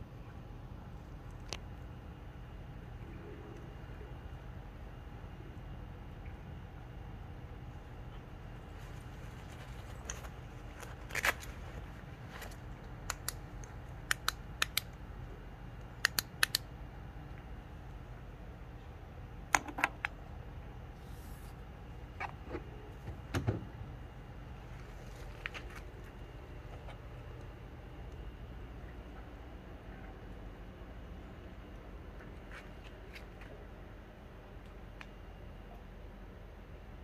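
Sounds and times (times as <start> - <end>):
steady low hum: 0.0 - 37.0
sharp clicks and ticks: 12.8 - 15.0, 16.0 - 16.7.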